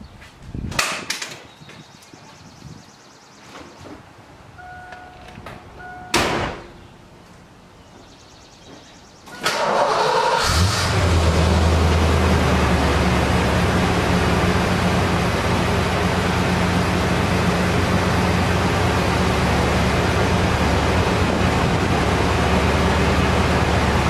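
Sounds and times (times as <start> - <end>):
short beeps: 4.6 - 6.2
loud thump: 6.1 - 6.7
car engine starting and idling: 9.3 - 24.0.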